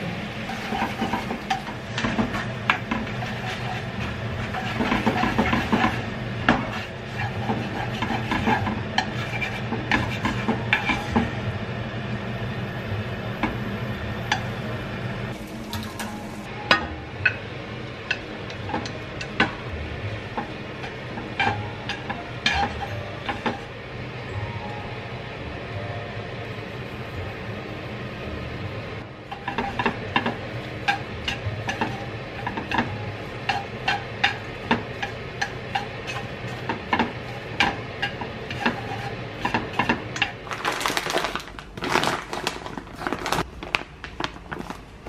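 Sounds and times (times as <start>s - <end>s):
steady low hum: 0.0s - 45.0s
chopsticks tapping pan: 20.3s - 23.6s, 29.3s - 40.4s
sauce sizzling and bubbling: 29.0s - 40.6s.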